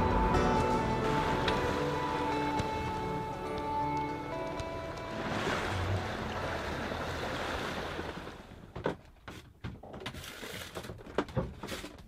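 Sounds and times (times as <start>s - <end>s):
sea and wind rushing: 0.0s - 8.7s.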